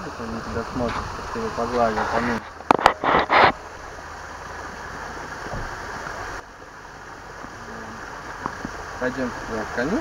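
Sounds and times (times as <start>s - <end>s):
steady hissing noise: 0.0s - 10.0s.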